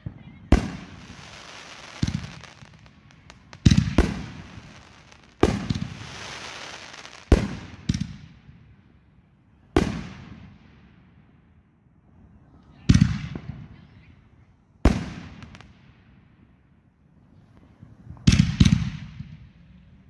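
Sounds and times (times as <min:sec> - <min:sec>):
fireworks bangs: 0:00.0 - 0:08.6, 0:09.8 - 0:10.8, 0:14.8 - 0:16.1, 0:18.1 - 0:19.5
hiss and crackle of sparks: 0:00.6 - 0:08.0.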